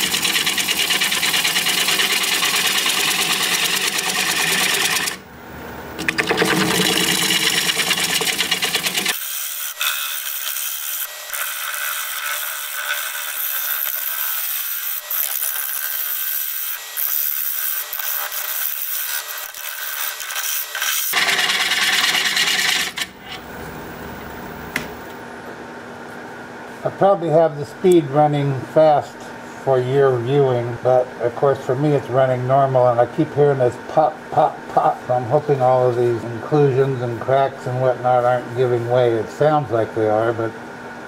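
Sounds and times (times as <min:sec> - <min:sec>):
gouge scraping wood on lathe: 0:00.0 - 0:05.2, 0:06.3 - 0:23.5
lathe running: 0:00.0 - 0:05.2, 0:06.0 - 0:23.6.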